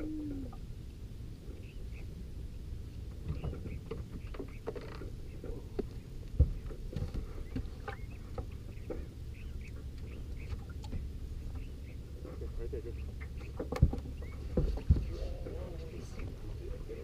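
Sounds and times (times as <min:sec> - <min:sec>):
low rumble of water and wind: 0:00.0 - 0:17.0
knocks and clatter on a boat: 0:03.1 - 0:11.7, 0:13.1 - 0:16.4.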